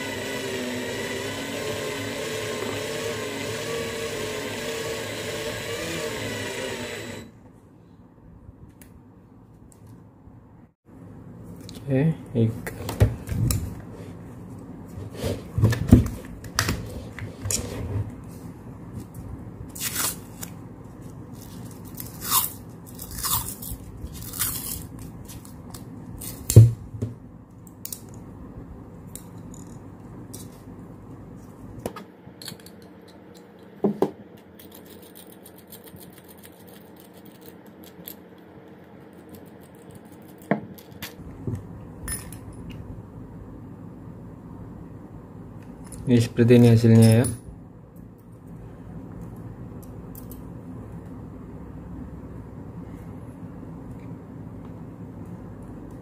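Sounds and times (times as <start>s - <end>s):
short tearing sounds: 19.7s - 20.6s.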